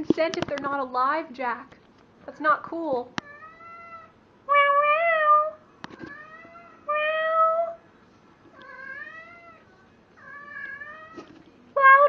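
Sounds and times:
cat yowling: 3.3 - 7.8.

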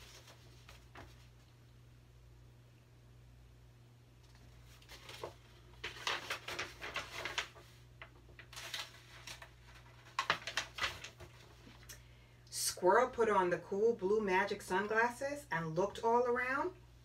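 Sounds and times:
book pages turning and rustling: 0.0 - 1.6, 4.2 - 11.9
faint low hum: 0.0 - 17.0.

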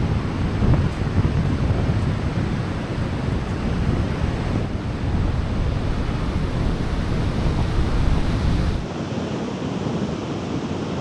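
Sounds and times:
surf breaking on beach: 0.0 - 9.7
wind buffeting microphone: 0.0 - 11.0.

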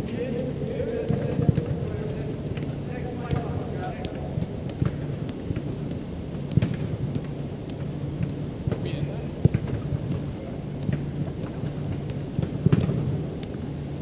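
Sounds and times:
steady low hum: 0.0 - 14.0
soccer ball kicked thuds: 1.0 - 1.8, 2.5 - 5.8, 6.5 - 7.1, 8.2 - 10.1.

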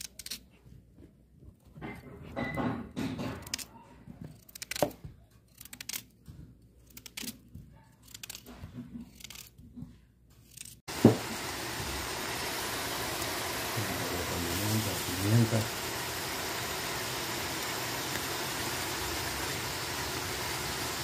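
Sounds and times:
pot hissing over heat: 10.9 - 21.0.

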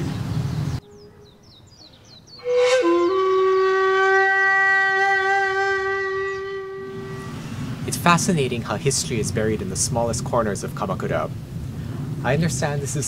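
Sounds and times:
faint high bird chirps: 0.0 - 2.6
flute long held note: 2.4 - 7.6.

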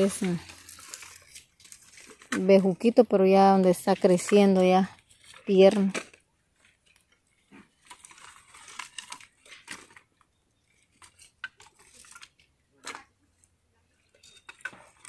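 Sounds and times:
sack and dry grass rustling: 0.0 - 5.9
firewood sticks clattering: 0.0 - 15.0.

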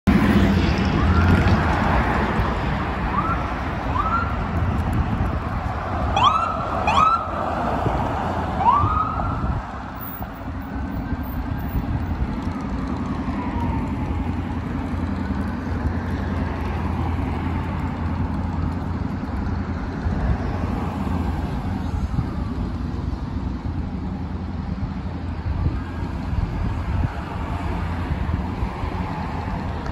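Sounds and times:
city traffic noise: 0.0 - 29.9
siren wail: 0.7 - 1.6, 2.9 - 4.4, 6.1 - 7.5, 8.5 - 9.6, 12.4 - 15.3
siren whoops: 0.9 - 1.5, 3.1 - 4.4, 6.1 - 7.3, 8.6 - 9.6, 13.2 - 14.3.

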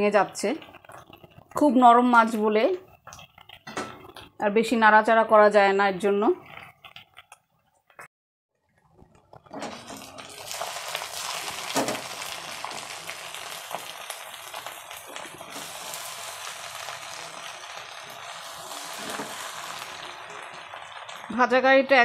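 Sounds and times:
fish and vegetables sizzling in oil: 0.0 - 4.4, 9.2 - 22.0
wooden spatula scraping pan: 18.5 - 19.7.

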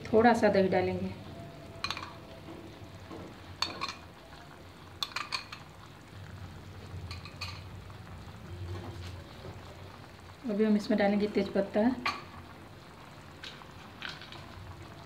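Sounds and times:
faint background noise: 0.0 - 15.0
metal spoon clinking on glass bowl: 1.8 - 2.2, 3.6 - 4.0.

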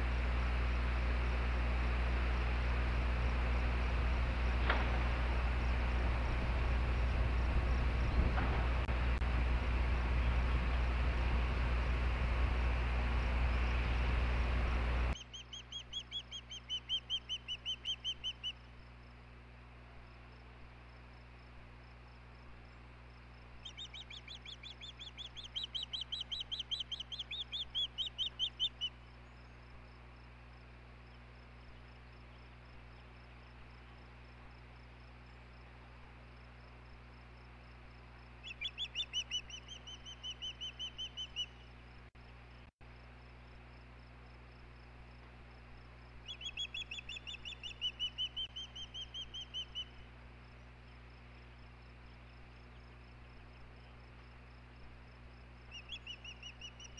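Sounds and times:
faint low hum: 0.0 - 56.9
osprey whistled chirps: 15.2 - 18.6, 23.6 - 29.0, 38.4 - 41.7, 46.2 - 50.0, 55.7 - 56.9.

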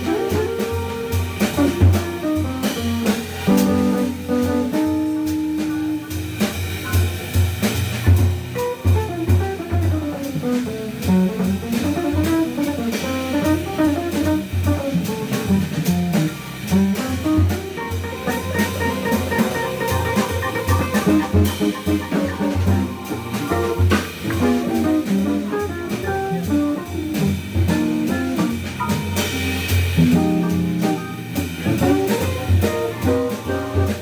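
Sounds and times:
drum cymbals: 0.0 - 34.0
electric guitar improvising: 8.6 - 34.0
organ bass line: 10.0 - 33.6.

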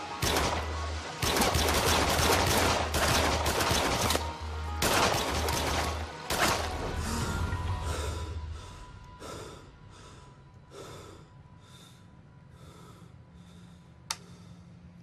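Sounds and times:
low rumble: 4.8 - 15.0.

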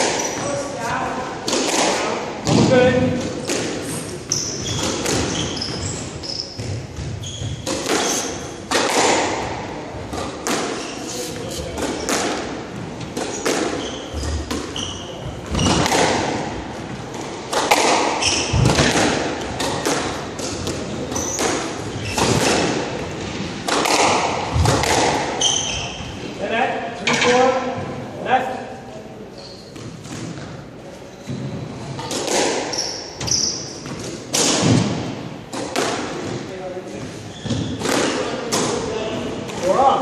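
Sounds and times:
sneakers squeaking on court floor: 0.0 - 0.8, 3.8 - 8.7, 9.4 - 12.2, 13.0 - 16.1, 18.1 - 18.9, 20.6 - 23.4, 25.3 - 26.3, 29.3 - 34.1, 37.0 - 37.9
squash ball hitting racquets and walls: 0.0 - 26.3, 29.6 - 40.0.

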